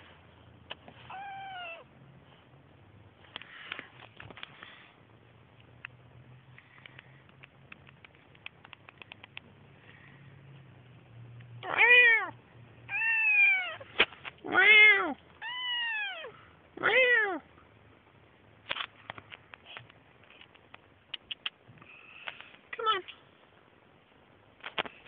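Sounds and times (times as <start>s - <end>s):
kitten meowing: 1.0s - 1.9s, 11.6s - 13.9s, 14.5s - 17.4s
faint clicks: 6.6s - 9.5s, 18.8s - 23.2s.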